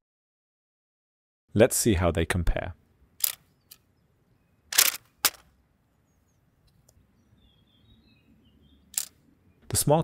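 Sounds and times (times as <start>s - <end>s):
sharp plastic snaps: 3.2s - 3.8s, 4.7s - 5.5s.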